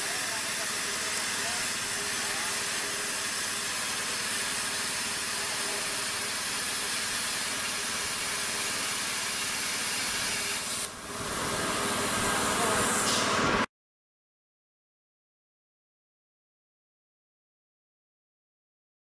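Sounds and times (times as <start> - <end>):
plasma arc hissing: 0.0 - 13.7.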